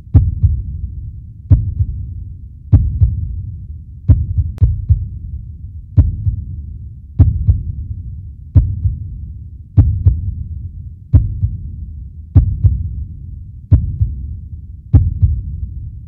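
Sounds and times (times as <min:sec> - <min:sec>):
heartbeat thumps: 0:00.0 - 0:00.9, 0:01.5 - 0:03.4, 0:04.1 - 0:05.2, 0:06.0 - 0:06.6, 0:07.2 - 0:07.8, 0:08.6 - 0:09.1, 0:09.8 - 0:10.4, 0:11.1 - 0:13.0, 0:13.7 - 0:15.8
low rumble: 0:00.0 - 0:16.0.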